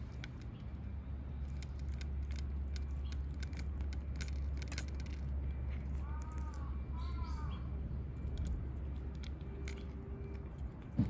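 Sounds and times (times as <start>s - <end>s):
cats crunching dry food: 8.2s - 11.0s.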